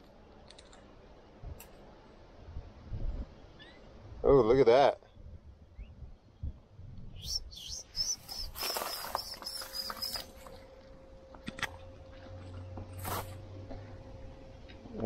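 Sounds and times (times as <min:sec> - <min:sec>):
chick peeping: 0:07.2 - 0:10.3.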